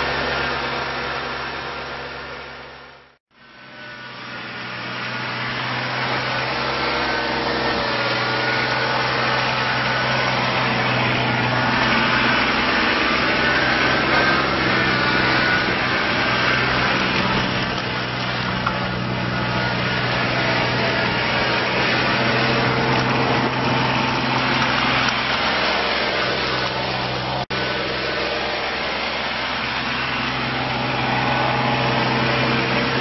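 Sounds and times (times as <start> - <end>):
tractor diesel engine running: 0.0 - 33.0.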